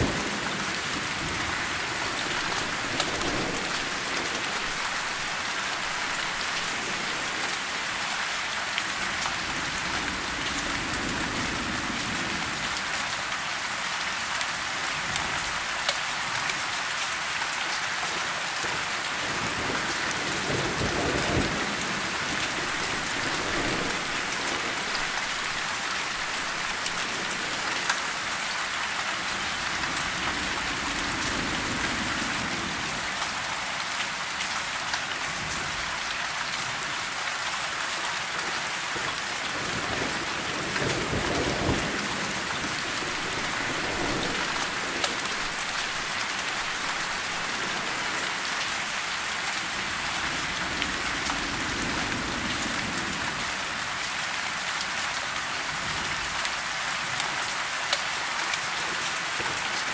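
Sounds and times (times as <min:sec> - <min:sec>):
distant thunder rumble: 0:00.0 - 0:07.6, 0:19.4 - 0:27.8, 0:39.6 - 0:48.5
rain on leaves: 0:00.0 - 0:59.9.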